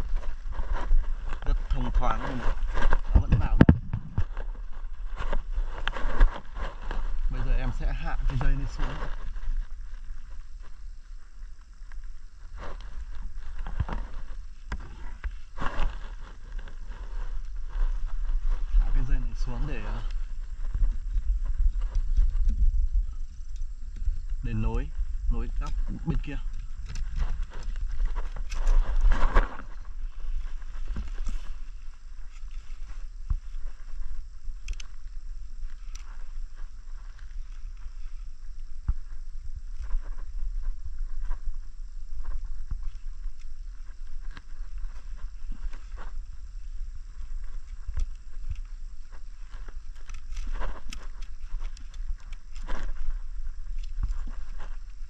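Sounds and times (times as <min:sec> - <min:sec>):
wind buffeting microphone: 0:00.0 - 0:12.4, 0:15.9 - 0:55.0
rustling: 0:00.0 - 0:55.0
microphone handling knocks: 0:02.6 - 0:04.6.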